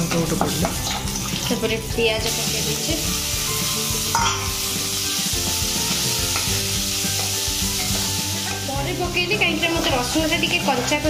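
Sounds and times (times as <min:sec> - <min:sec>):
onions sizzling in oil: 0:00.0 - 0:11.0
spatula stirring: 0:03.3 - 0:08.8.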